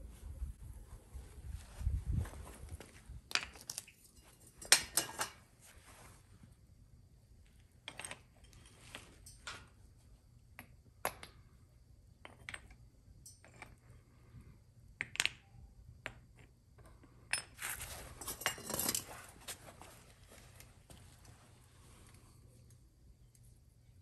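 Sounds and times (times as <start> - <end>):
metallic clinks and knocks: 7.8 - 9.8, 12.2 - 13.9, 16.9 - 19.2.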